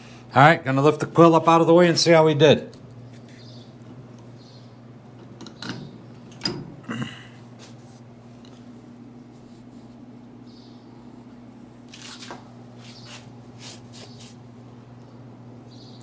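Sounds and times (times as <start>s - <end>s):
low electrical hum: 0.0s - 16.0s
rustling handling noises: 11.8s - 14.4s.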